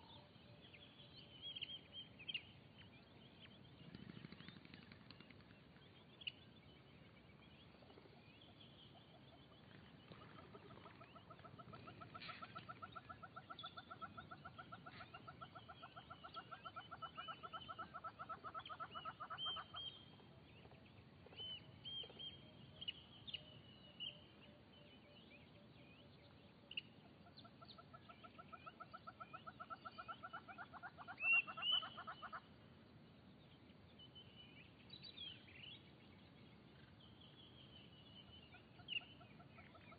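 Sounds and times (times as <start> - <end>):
bird pulsing trill: 7.6 - 20.2.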